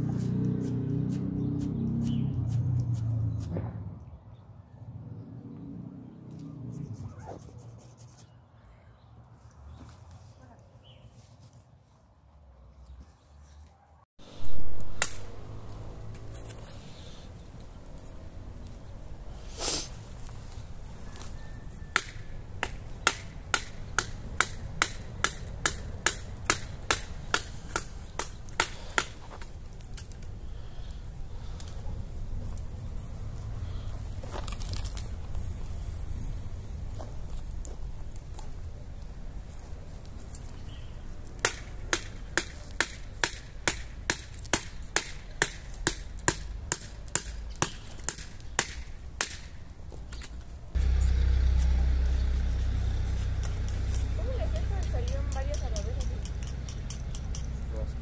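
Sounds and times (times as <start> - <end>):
stick striking wood: 14.9 - 15.3, 21.9 - 29.5.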